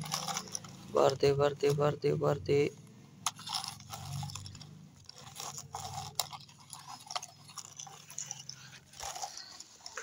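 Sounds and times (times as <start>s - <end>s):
toy bucket scraping dry soil: 0.0s - 2.1s, 3.2s - 10.0s.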